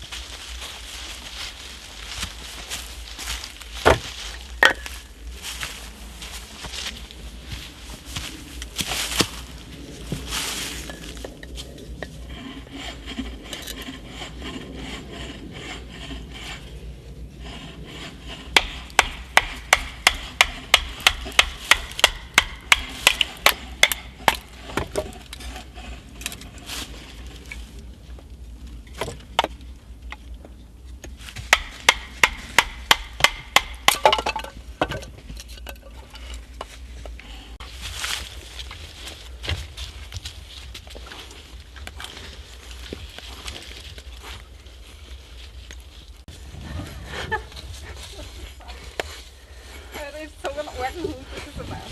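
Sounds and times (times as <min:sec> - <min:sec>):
wood handling and rubbing: 0:00.0 - 0:51.9.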